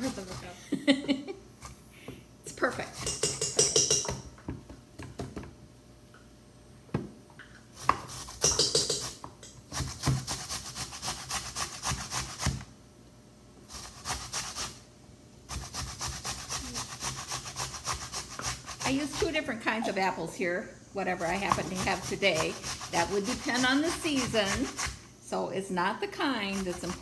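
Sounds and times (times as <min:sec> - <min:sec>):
apple grated on metal grater: 0:00.0 - 0:00.6, 0:07.8 - 0:12.6, 0:13.7 - 0:14.8, 0:15.5 - 0:19.5, 0:21.2 - 0:25.0, 0:26.4 - 0:27.0.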